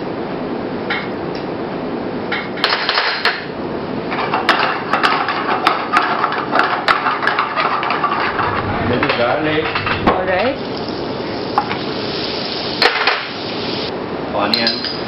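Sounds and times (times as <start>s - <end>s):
butter sizzling in a frying pan: 10.6s - 13.9s.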